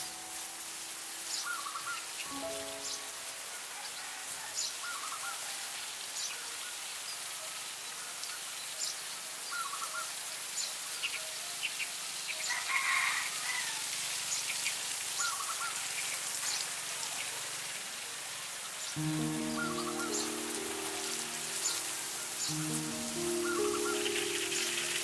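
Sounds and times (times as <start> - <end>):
small birds chirping: 18.8 - 25.0.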